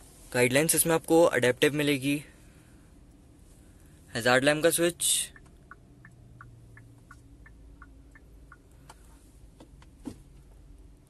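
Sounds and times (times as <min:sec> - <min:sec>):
hazard indicator ticking: 0:05.2 - 0:09.1.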